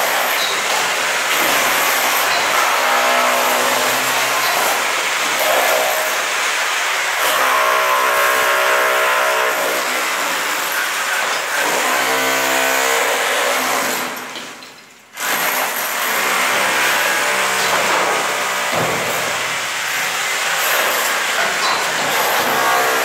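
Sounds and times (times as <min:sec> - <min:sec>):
hammer drills chattering into concrete: 0:00.0 - 0:07.4, 0:13.6 - 0:23.0.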